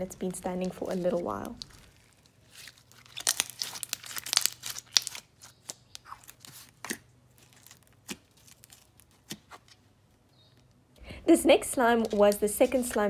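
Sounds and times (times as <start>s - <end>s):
slime clicking and crackling: 0.3s - 9.8s.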